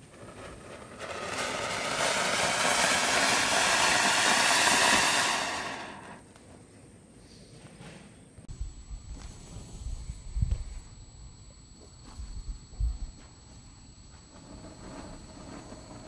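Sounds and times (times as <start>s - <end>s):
firework fountain hissing: 0.0s - 6.2s, 14.3s - 16.0s.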